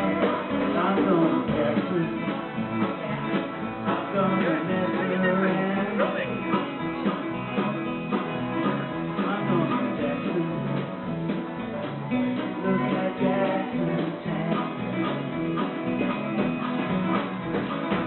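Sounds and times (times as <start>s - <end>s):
person singing: 0.0s - 6.6s, 9.1s - 10.9s, 12.1s - 16.4s
acoustic guitars strumming: 0.0s - 18.0s.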